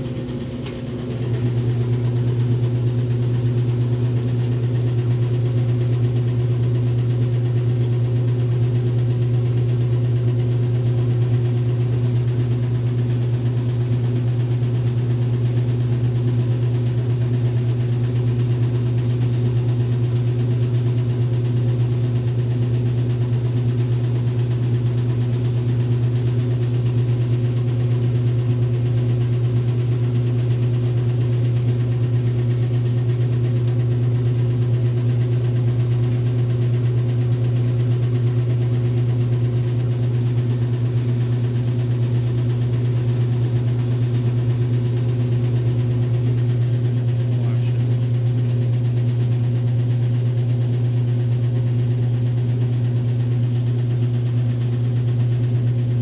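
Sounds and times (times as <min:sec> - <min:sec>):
washing machine motor hum: 0:00.0 - 0:56.0.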